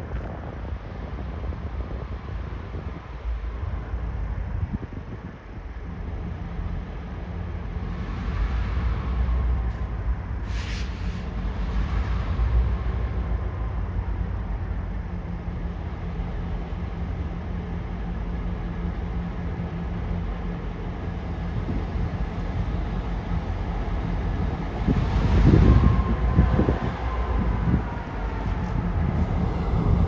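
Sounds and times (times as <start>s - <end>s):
locomotive engine running: 5.7s - 30.0s
brief hiss: 10.5s - 11.3s.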